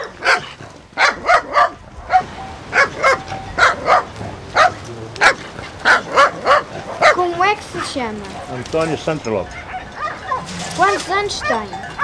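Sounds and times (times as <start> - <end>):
dog barking: 0.0 - 8.6, 9.6 - 10.8.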